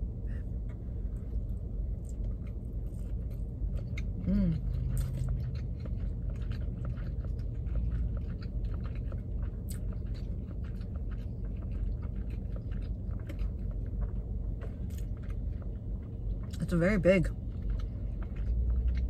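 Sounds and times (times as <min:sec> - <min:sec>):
person chewing food: 0:00.0 - 0:16.7, 0:17.3 - 0:19.0
low steady rumble: 0:00.0 - 0:19.0
person humming: 0:04.3 - 0:04.7.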